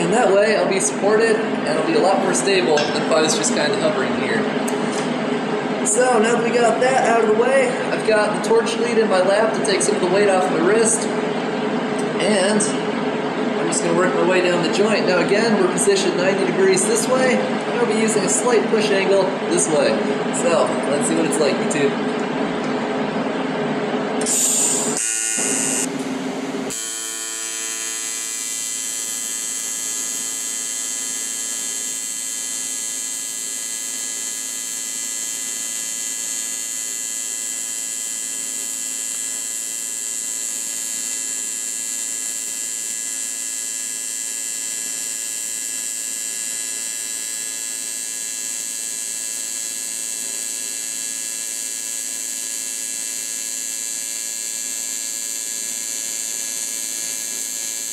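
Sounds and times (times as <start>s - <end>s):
welding arc buzzing and hissing: 24.0s - 57.9s.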